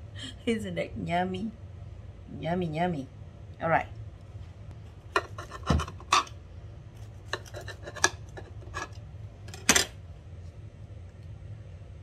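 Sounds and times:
knife cutting and scraping on board: 0:05.1 - 0:06.4, 0:07.0 - 0:09.8.

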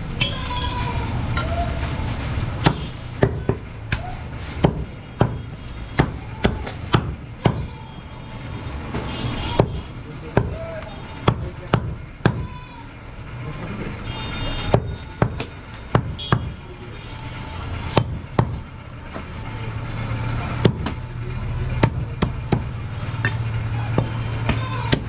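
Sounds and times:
knife chopping meat and bone: 0:04.6 - 0:05.4, 0:17.9 - 0:18.6.

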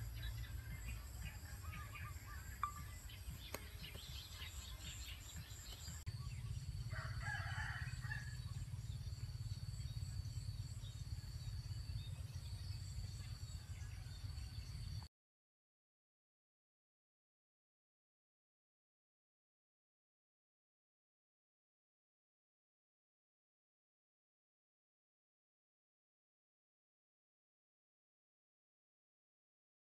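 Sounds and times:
small birds chirping: 0:00.0 - 0:07.1
low outdoor rumble: 0:00.0 - 0:15.1
rooster crowing: 0:06.9 - 0:08.5.

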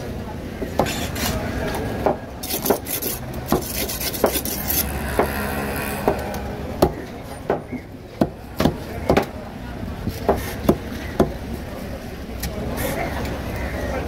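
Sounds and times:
knife rasping through fish: 0:02.4 - 0:05.5.

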